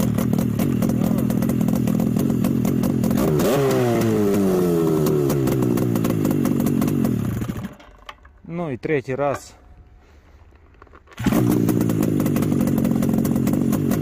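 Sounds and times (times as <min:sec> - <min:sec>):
snowmobile engine running: 0:00.0 - 0:07.7, 0:11.2 - 0:14.0.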